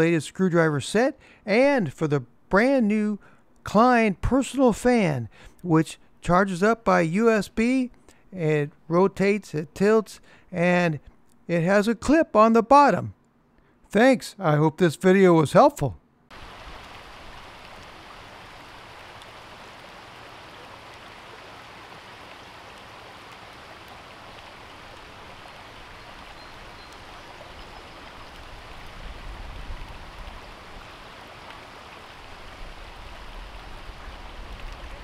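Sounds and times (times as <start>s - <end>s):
stream babbling over stones: 16.3s - 35.0s.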